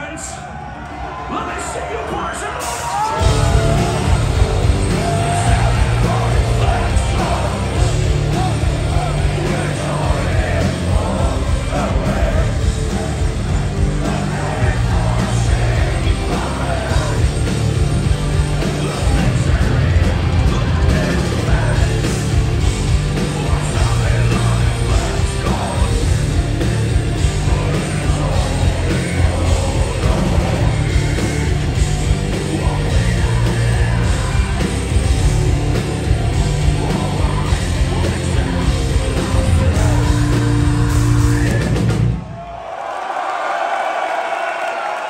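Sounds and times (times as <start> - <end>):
shouted vocals: 0.0 - 17.6
drums: 0.0 - 45.0
distorted electric guitars: 2.6 - 42.2.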